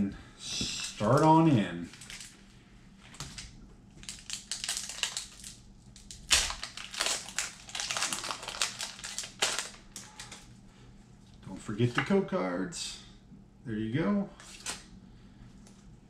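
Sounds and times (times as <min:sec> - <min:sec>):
foil wrapper crackling: 0:00.7 - 0:02.4, 0:03.2 - 0:10.5.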